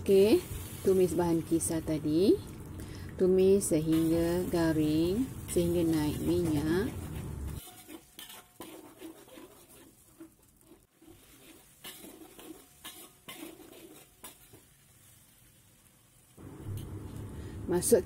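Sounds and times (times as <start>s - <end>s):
metal spatula scraping a wok: 3.8s - 15.2s.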